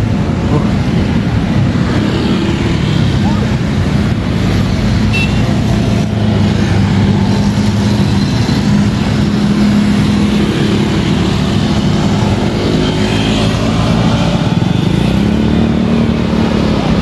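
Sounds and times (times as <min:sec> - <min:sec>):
vehicle engines humming: 0:00.0 - 0:17.0.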